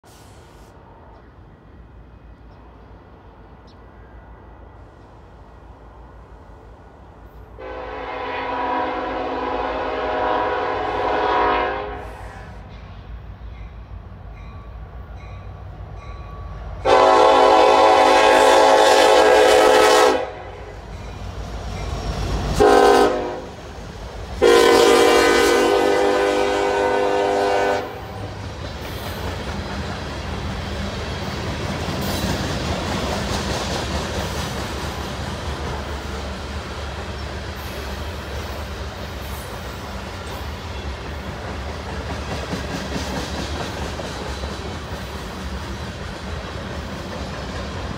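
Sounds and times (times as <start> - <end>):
train rumbling past: 0.0 - 47.9
train horn blasts: 7.6 - 12.7, 16.8 - 20.8, 22.5 - 23.6, 24.4 - 28.3
wheels clacking over rail joints: 28.3 - 47.9.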